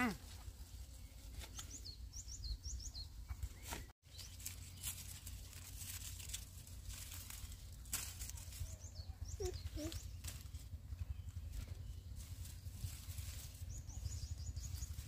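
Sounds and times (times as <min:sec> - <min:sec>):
low outdoor rumble: 0:00.0 - 0:15.0
small bird chirping: 0:00.8 - 0:05.8, 0:07.3 - 0:15.0
rustles and clicks: 0:03.3 - 0:15.0.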